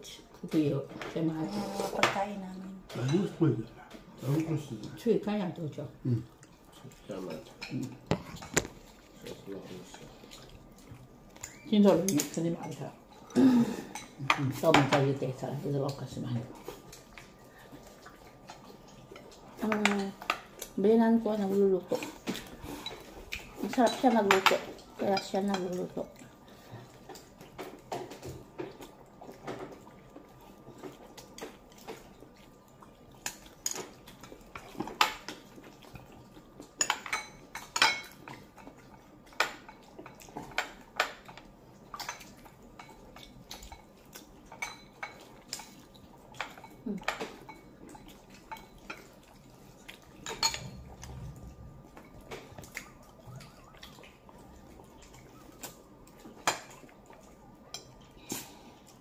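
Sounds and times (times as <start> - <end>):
utensils clinking on plates: 22.1 - 25.9, 36.7 - 38.7, 39.3 - 51.1.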